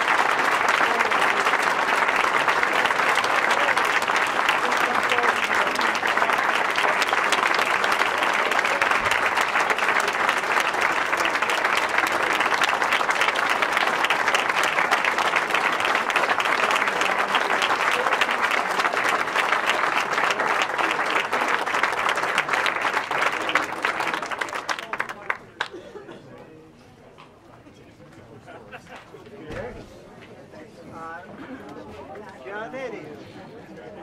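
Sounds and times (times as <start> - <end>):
crowd applauding: 0.0 - 25.9.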